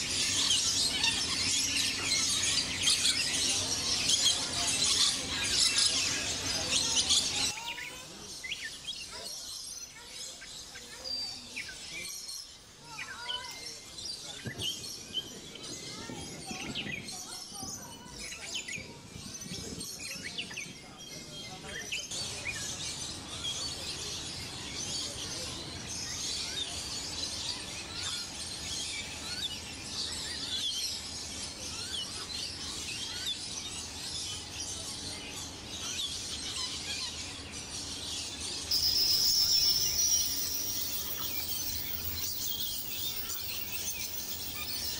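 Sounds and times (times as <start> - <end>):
birds chirping and twittering: 0.0 - 44.9
steady high-pitched tone: 38.7 - 44.9.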